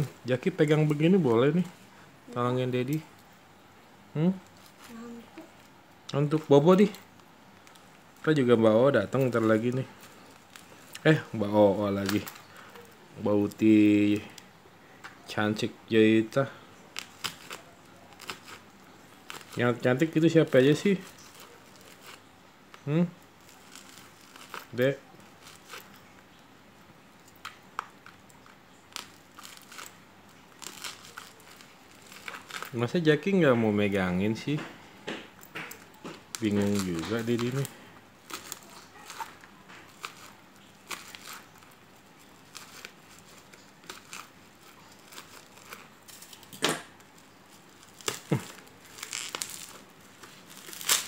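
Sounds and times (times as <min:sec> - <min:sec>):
plastic wrapping crinkling: 0:04.4 - 0:34.7, 0:35.3 - 0:51.0
tape ripping: 0:09.0 - 0:12.8, 0:16.9 - 0:26.2, 0:27.2 - 0:33.0, 0:35.6 - 0:51.0
knife scraping packing tape: 0:47.8 - 0:51.0.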